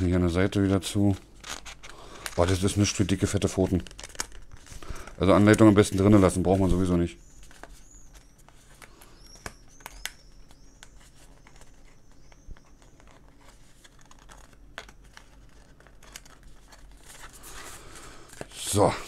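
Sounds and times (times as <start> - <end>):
paper rustling: 0.5 - 19.0
cardboard packaging taps and clicks: 8.8 - 13.2.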